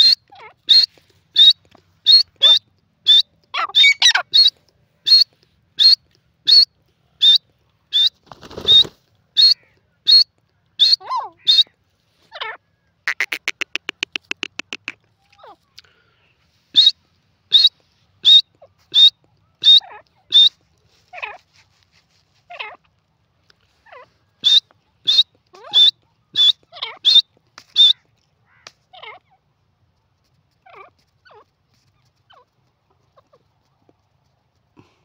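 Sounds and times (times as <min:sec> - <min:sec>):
bird calling sharp high notes: 0:13.1 - 0:15.0.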